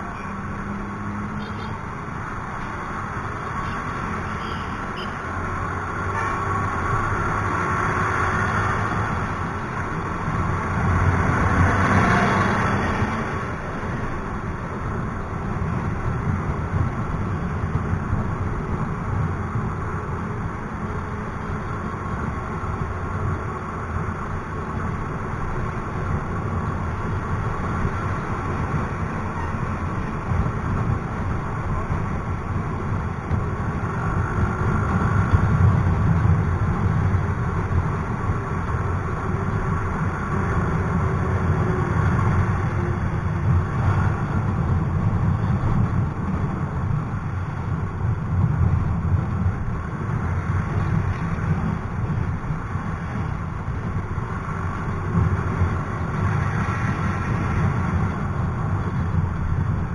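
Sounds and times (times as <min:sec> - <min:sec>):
surrounding traffic: 0:00.0 - 0:59.9.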